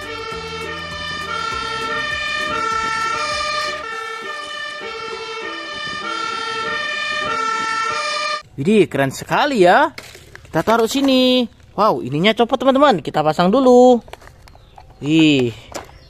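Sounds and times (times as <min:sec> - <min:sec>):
fire engine two-tone siren: 0:00.0 - 0:08.4.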